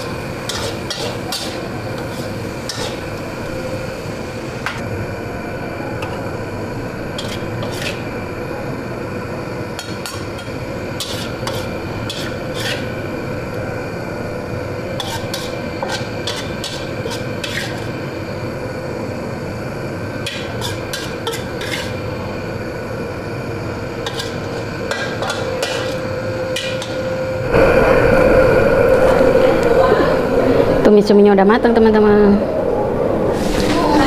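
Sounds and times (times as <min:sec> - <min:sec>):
spatula scraping food in wok: 0:00.0 - 0:03.2, 0:07.2 - 0:08.1, 0:09.8 - 0:13.0, 0:14.9 - 0:17.9, 0:20.2 - 0:22.1, 0:24.0 - 0:26.0.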